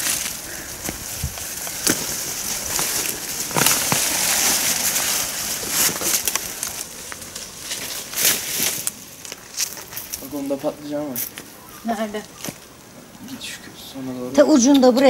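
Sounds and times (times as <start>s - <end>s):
stems snapping: 0.0s - 11.5s
plants rustling and crackling: 0.0s - 15.0s.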